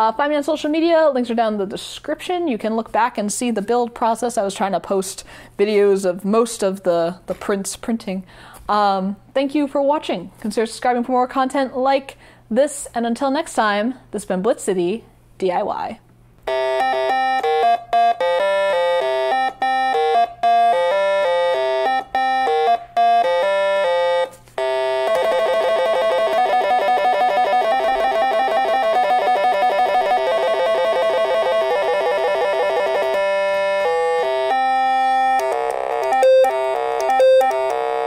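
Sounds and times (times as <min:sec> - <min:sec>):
analog synthesizer notes: 0:16.5 - 0:38.0.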